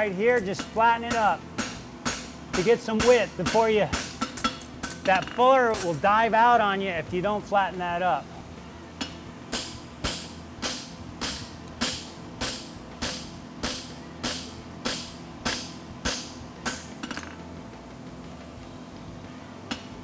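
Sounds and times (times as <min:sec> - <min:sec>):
hammer striking metal on anvil: 0:00.6 - 0:06.0, 0:09.0 - 0:17.4.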